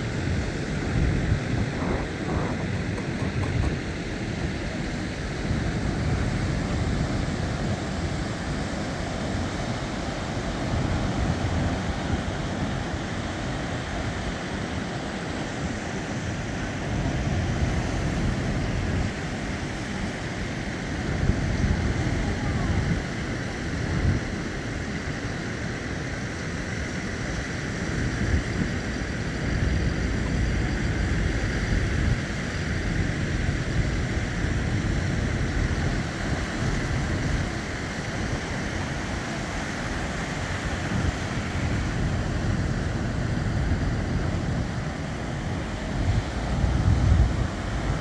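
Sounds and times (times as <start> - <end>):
wind buffeting microphone: 0.0 - 25.2, 27.7 - 48.0
ocean surf washing on beach: 0.0 - 48.0.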